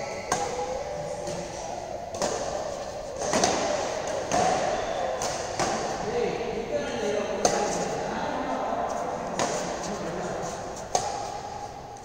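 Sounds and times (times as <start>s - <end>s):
rackets hitting shuttlecock: 0.2s - 6.2s, 7.3s - 8.0s, 8.9s - 11.8s.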